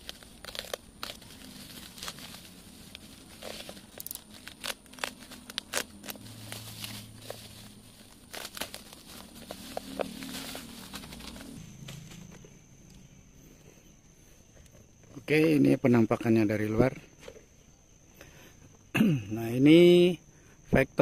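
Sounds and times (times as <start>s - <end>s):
utility knife slitting tape: 0.0s - 7.0s
plastic and bubble wrap crinkling: 0.0s - 11.6s.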